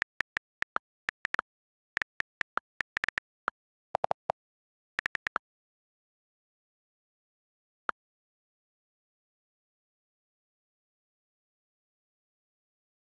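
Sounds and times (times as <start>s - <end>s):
touchscreen keyboard clicks: 0.0s - 1.4s, 2.0s - 3.3s, 5.0s - 5.4s.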